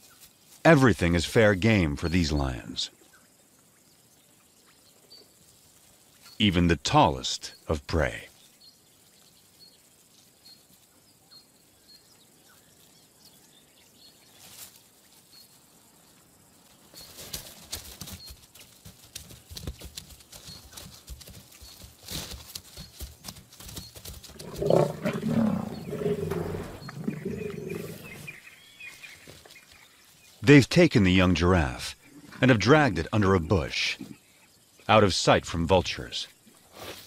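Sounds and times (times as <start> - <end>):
lioness growling and snarling: 24.3 - 28.4.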